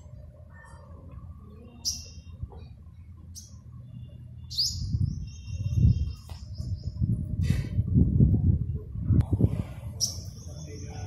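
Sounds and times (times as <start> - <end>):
songbird chirping and whistling: 1.6 - 2.4, 3.3 - 7.0
low microphone rumble: 4.7 - 11.0.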